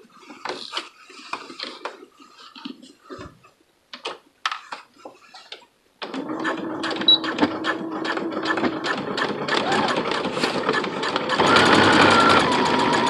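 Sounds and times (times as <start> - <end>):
sewing machine stitching: 6.0 - 13.0.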